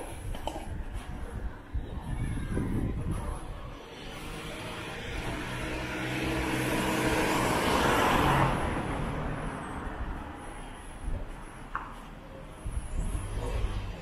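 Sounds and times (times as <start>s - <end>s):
vehicle passing close by: 3.9s - 10.1s.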